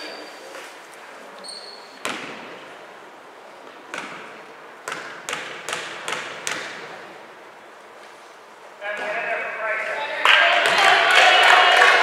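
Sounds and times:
basketball bouncing on hardwood: 4.8s - 6.8s.

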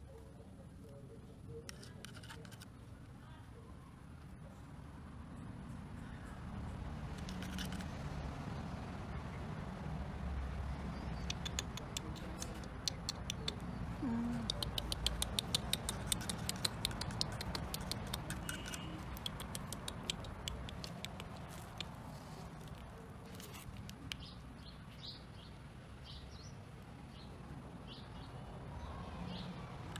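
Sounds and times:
metal tweezers clicking: 14.5s - 21.9s.

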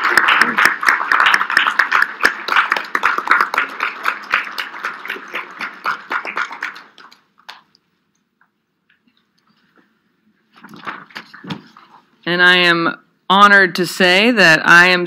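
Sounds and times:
people clapping: 0.0s - 7.8s.

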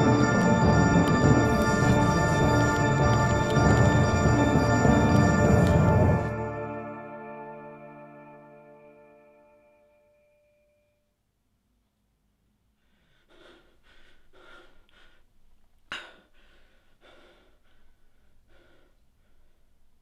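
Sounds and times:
man gasping: 12.8s - 15.3s, 15.9s - 19.7s
man breathing heavily: 12.8s - 20.0s.

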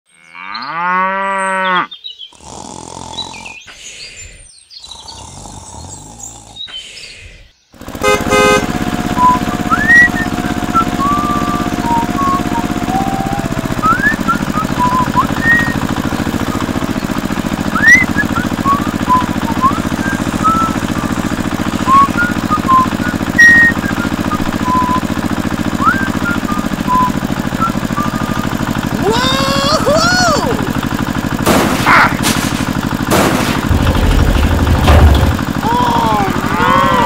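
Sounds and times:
small engine chugging: 7.8s - 37.0s.

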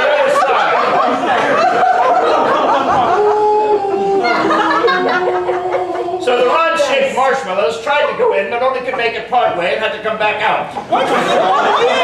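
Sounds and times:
audience laughing: 0.0s - 7.2s, 10.7s - 12.0s
voice holding a long note: 3.1s - 6.6s.

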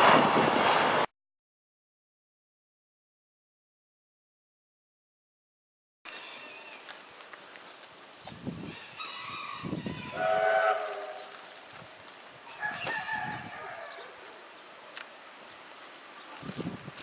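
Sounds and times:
rooster crowing: 8.6s - 11.3s, 12.5s - 14.3s.

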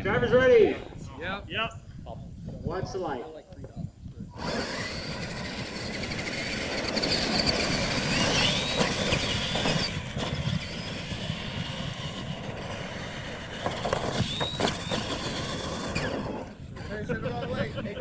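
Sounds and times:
toy truck electric motors whining: 4.3s - 17.8s.

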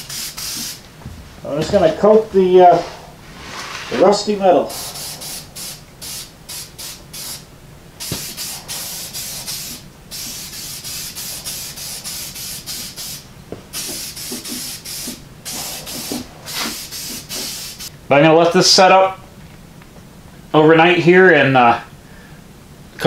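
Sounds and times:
aerosol can spraying: 0.0s - 0.8s, 4.7s - 17.9s.

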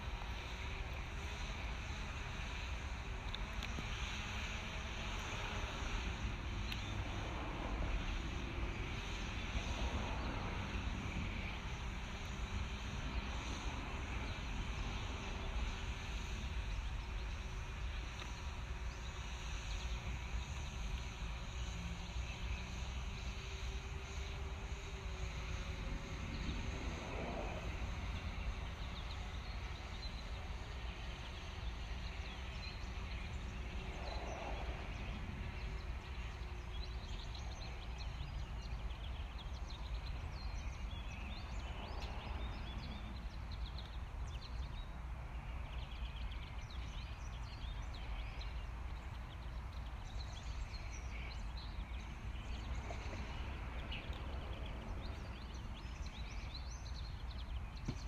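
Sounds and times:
low outdoor rumble: 0.0s - 58.0s.

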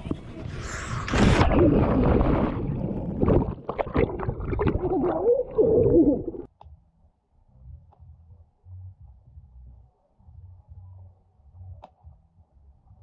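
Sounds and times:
underwater bubbling and gurgling: 1.0s - 6.5s.

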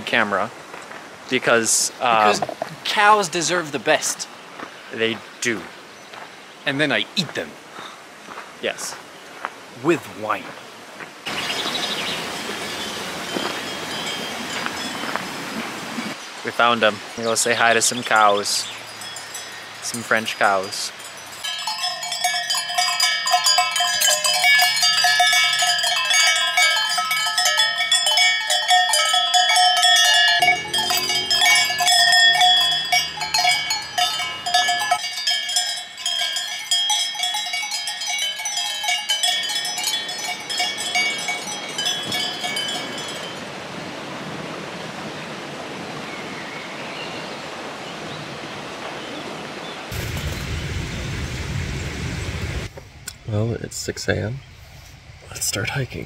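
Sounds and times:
cowbells clanking: 2.1s - 3.3s, 12.4s - 15.1s, 17.8s - 43.5s.

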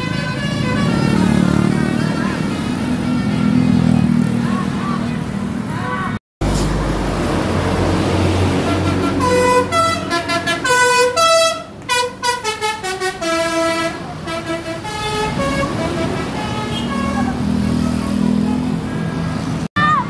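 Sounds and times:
bus musical horn: 0.0s - 4.0s, 8.4s - 18.8s.

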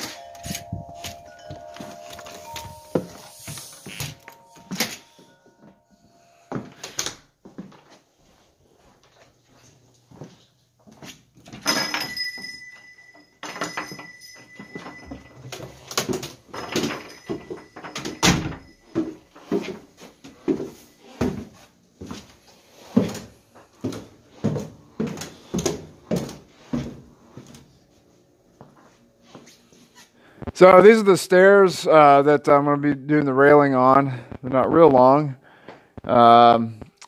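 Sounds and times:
footsteps on wooden stairs: 0.0s - 5.8s, 6.5s - 11.6s, 13.6s - 27.7s
door squeaking open: 2.8s - 5.3s.

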